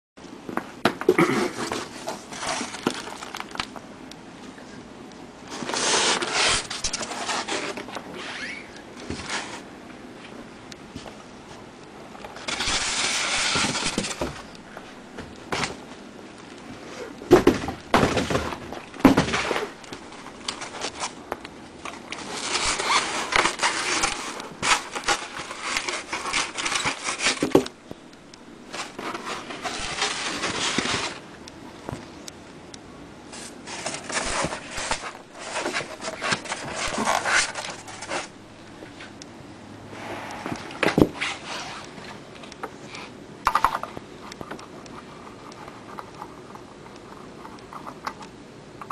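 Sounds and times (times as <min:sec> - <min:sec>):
packaging scraping and rubbing: 0:01.5 - 0:03.7, 0:05.5 - 0:09.7, 0:12.4 - 0:14.5, 0:18.0 - 0:21.2, 0:21.8 - 0:27.6, 0:28.7 - 0:31.2, 0:33.3 - 0:38.4, 0:40.0 - 0:42.2.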